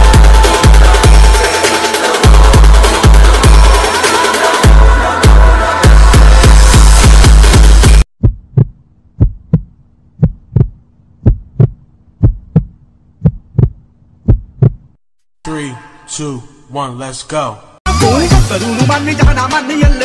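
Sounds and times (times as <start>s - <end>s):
loud dance music: 0.0s - 8.0s, 17.9s - 20.0s
rap music: 0.0s - 8.0s, 17.9s - 20.0s
heartbeat thumps: 6.2s - 15.0s.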